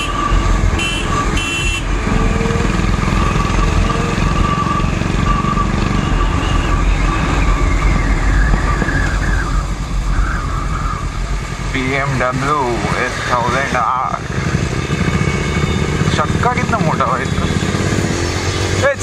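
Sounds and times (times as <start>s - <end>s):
vehicle horn beeps: 0.0s - 2.0s, 3.3s - 7.3s, 14.8s - 16.4s
motorcycle engine running: 0.0s - 19.0s
road and wind noise: 0.0s - 19.0s.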